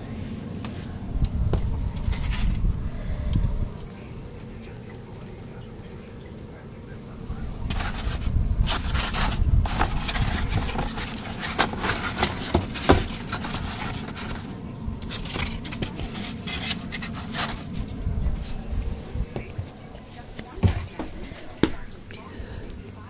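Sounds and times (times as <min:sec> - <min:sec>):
cardboard scraping against plastic bin: 0:01.4 - 0:02.6, 0:07.6 - 0:19.7, 0:20.5 - 0:21.9.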